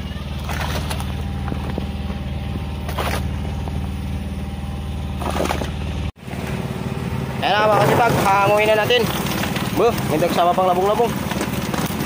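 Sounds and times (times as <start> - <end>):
boat engine idling: 0.0 - 12.0
water splashing: 0.3 - 1.9, 2.7 - 3.8, 5.2 - 5.8, 7.8 - 12.0.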